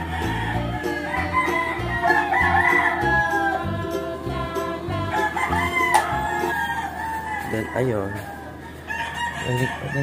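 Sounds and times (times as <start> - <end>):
rooster crowing: 0.0 - 10.0.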